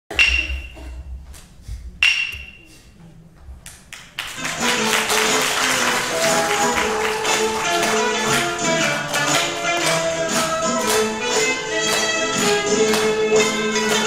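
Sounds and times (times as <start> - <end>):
shamisen music with percussion: 0.1 - 1.2, 2.0 - 2.7, 4.5 - 14.0.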